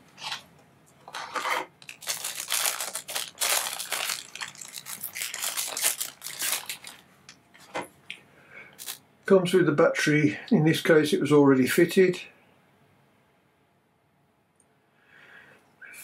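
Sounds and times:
plastic bag crinkling: 1.0 - 7.4, 8.8 - 9.0.

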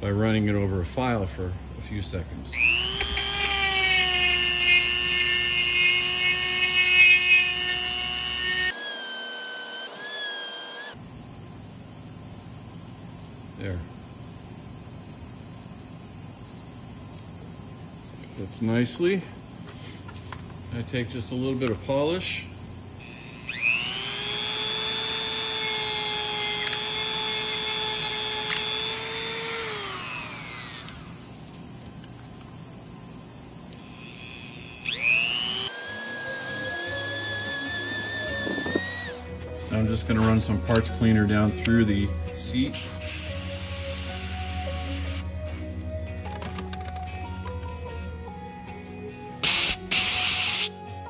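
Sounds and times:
rotary tool whining: 2.5 - 11.0, 21.4 - 47.6, 49.4 - 50.8.

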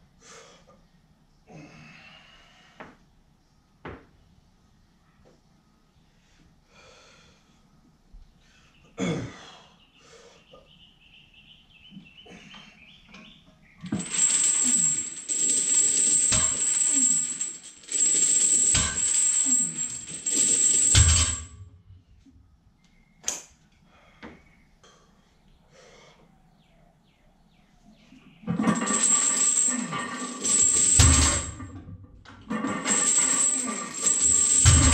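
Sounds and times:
metal gym equipment rattling: 13.8 - 21.6, 28.5 - 34.9.

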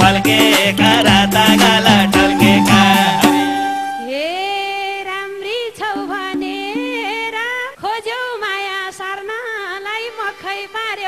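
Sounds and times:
folk band with drums: 0.0 - 4.1
woman singing: 0.0 - 11.0.

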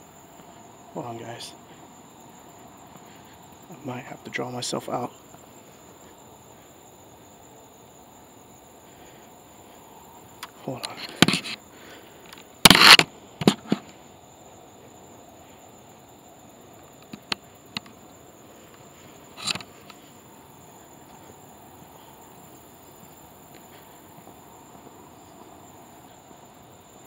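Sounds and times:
night insects trilling: 0.0 - 27.0
sharp clicks: 10.4 - 11.6, 12.3 - 13.8, 17.0 - 18.0, 19.4 - 20.0.

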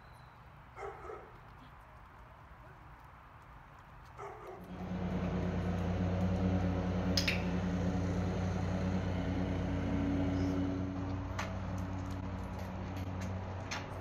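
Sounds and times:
low mechanical hum: 4.6 - 14.0.

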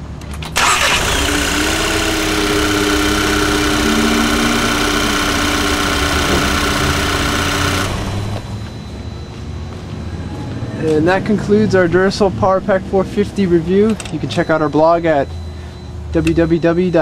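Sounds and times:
car engine starting and idling: 0.3 - 8.8.

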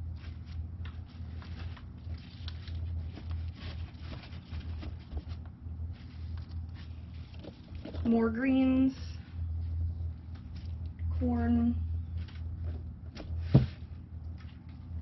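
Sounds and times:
steady low hum: 0.0 - 15.0
cardboard rustling and crackling: 0.1 - 8.2.

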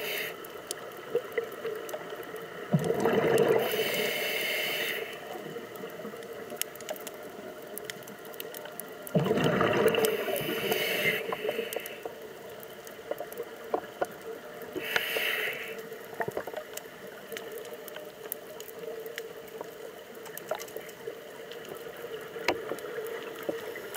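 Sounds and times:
underwater bubbles hissing: 0.0 - 6.4, 9.0 - 17.2.

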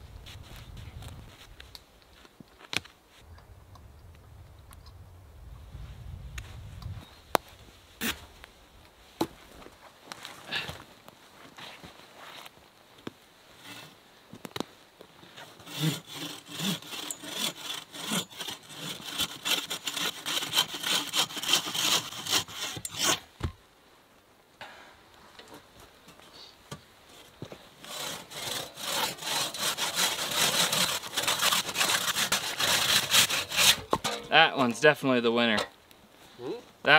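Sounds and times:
hand saw cutting log: 15.4 - 23.3, 27.8 - 34.3.

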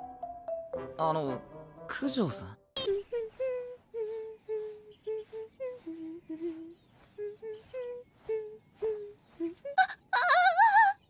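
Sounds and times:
woman humming a tune: 2.8 - 11.0.

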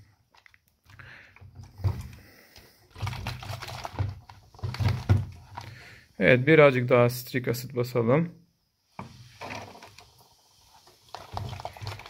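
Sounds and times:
plastic bottle crackling: 0.0 - 5.9, 9.4 - 12.0.

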